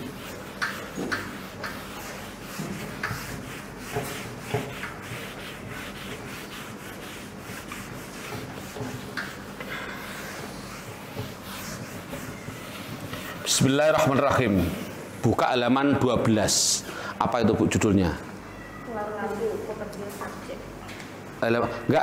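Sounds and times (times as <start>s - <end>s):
eraser wiping whiteboard: 0.0s - 15.0s.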